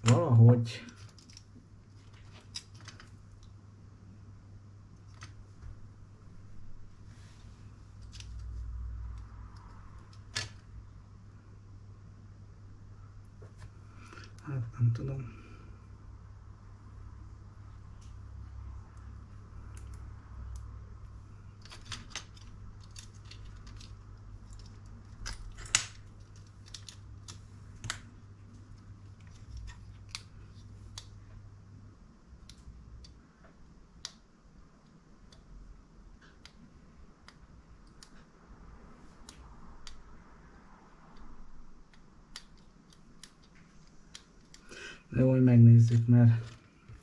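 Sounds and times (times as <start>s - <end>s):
steady low hum: 0.0s - 47.0s
plastic parts clicking: 21.5s - 31.1s.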